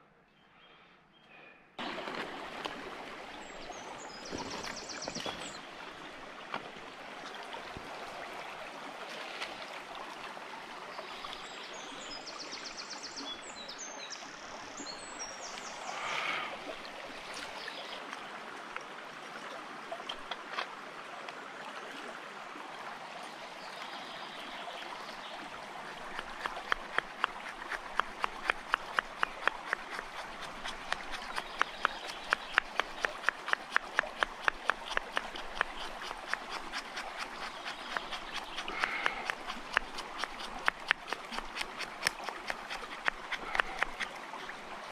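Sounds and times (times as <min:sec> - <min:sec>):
stream running over stones: 0:01.8 - 0:44.9
knife batoned through log: 0:26.0 - 0:44.1.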